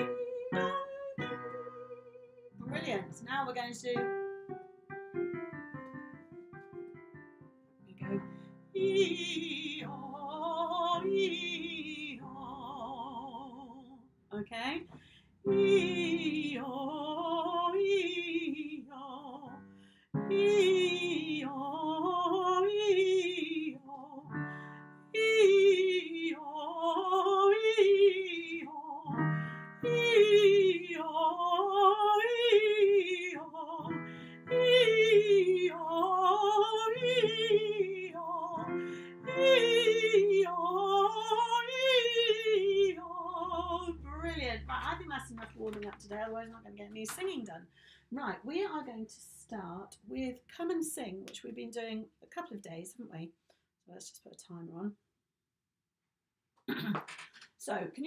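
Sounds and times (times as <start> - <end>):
woman singing vocal warm-up: 0.0 - 4.0, 8.0 - 14.5, 15.5 - 47.3
low accompaniment notes: 43.0 - 46.8.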